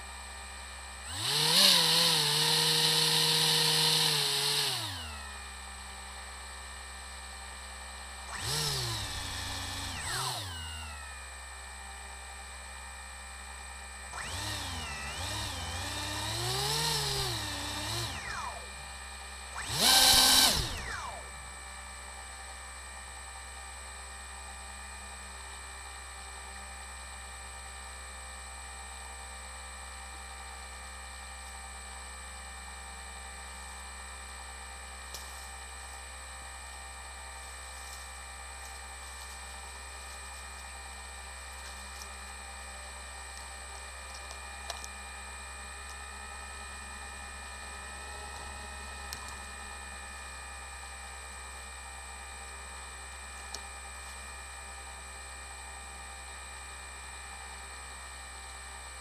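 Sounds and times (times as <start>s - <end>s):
drone motors whining: 1.1s - 5.6s, 8.2s - 11.4s, 14.1s - 21.5s.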